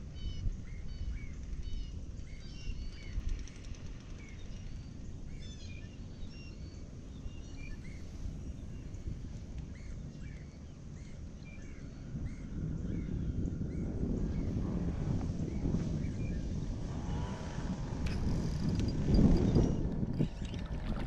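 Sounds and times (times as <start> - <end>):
wind rumble: 0.0 - 21.0
water rumble: 12.0 - 21.0.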